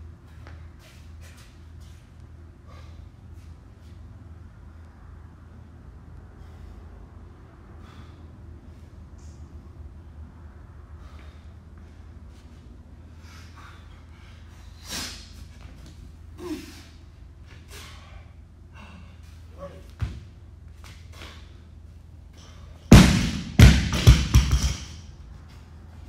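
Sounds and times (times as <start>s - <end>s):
sharp breaths: 2.5s - 5.3s, 6.0s - 9.8s, 10.6s - 15.5s, 16.4s - 19.6s
barbell bouncing: 22.9s - 25.0s
barbell thudding on rubber floor: 22.9s - 25.0s.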